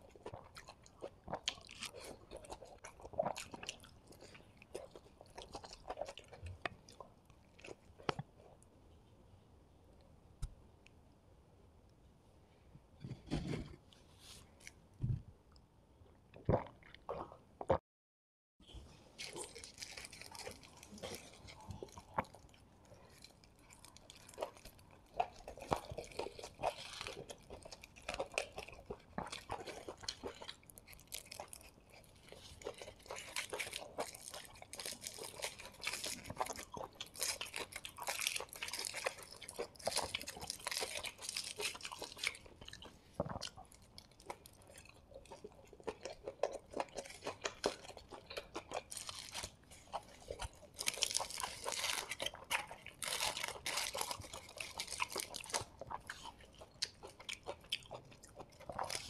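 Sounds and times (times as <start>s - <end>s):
aluminium foil crinkling: 50.4s - 55.7s.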